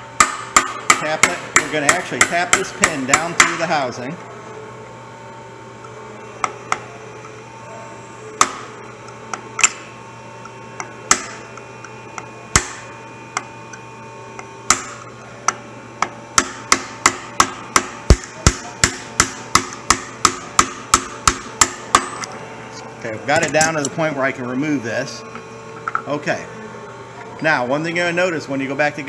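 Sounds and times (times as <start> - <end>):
hammer tapping metal punch: 0.2 - 3.7, 10.8 - 11.6, 12.2 - 22.3.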